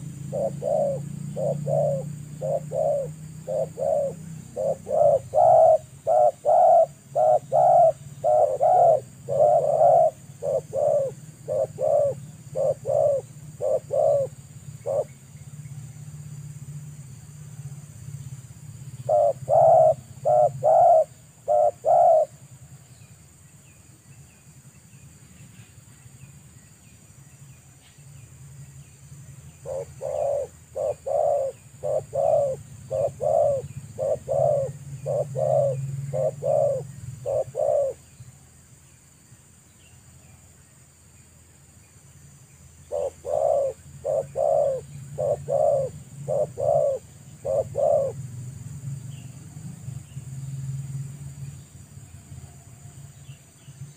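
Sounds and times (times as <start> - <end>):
doves cooing: 0.0 - 15.2, 19.0 - 22.4, 29.6 - 38.0, 42.9 - 48.3
small birds chirping: 0.0 - 53.9
steady low hum: 0.0 - 53.9.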